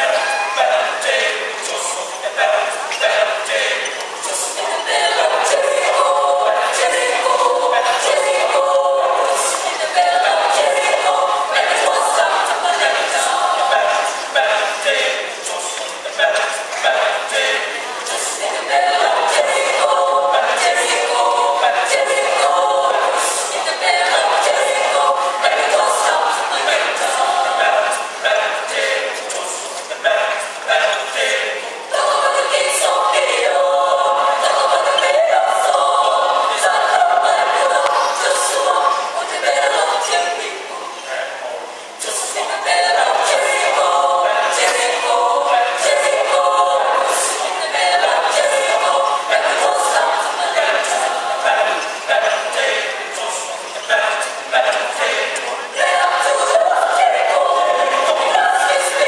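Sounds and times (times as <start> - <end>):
mixed choir singing: 0.0 - 59.0.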